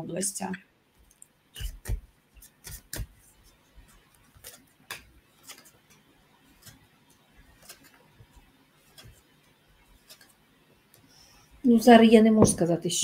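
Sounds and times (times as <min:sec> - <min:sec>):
cards being shuffled: 0:01.6 - 0:10.4.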